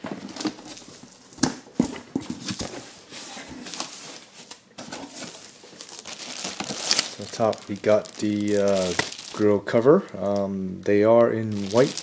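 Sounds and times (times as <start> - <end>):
cardboard flaps scraping and rustling: 2.3 - 9.4.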